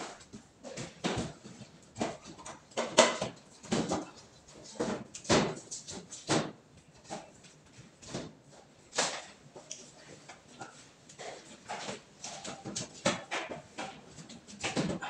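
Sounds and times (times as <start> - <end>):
plastic panel knocks and clacks: 0.7 - 6.5.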